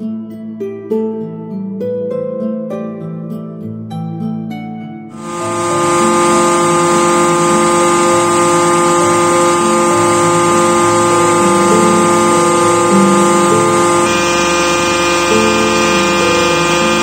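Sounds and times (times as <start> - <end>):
hydraulic pump motor whining: 5.2 - 17.0.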